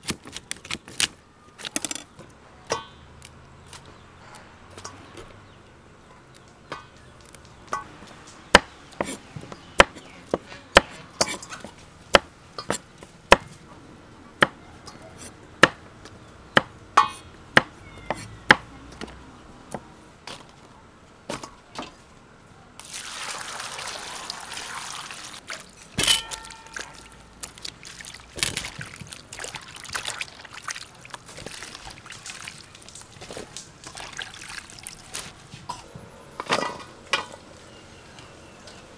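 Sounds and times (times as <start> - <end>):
knife chopping vegetables: 8.6 - 11.4
water pouring: 22.8 - 35.3
vegetables clattering in metal colander: 25.7 - 27.3.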